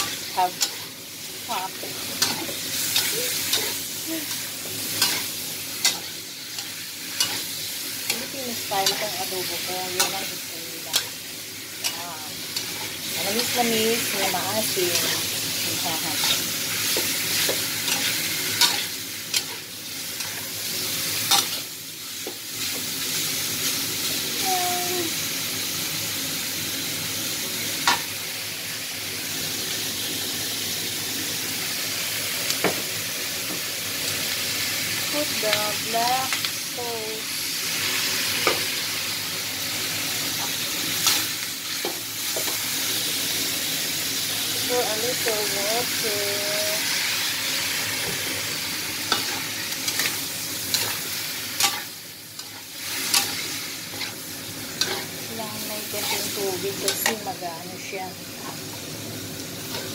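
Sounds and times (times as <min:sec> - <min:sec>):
meat sizzling in a pan: 0:00.0 - 0:59.9
metal spatula scraping a pan: 0:51.6 - 0:54.2, 0:54.8 - 0:55.2.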